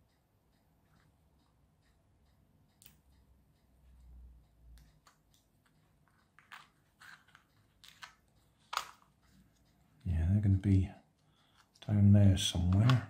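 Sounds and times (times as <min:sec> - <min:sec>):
plastic kit pieces clicking: 0:06.4 - 0:09.0, 0:12.7 - 0:13.0.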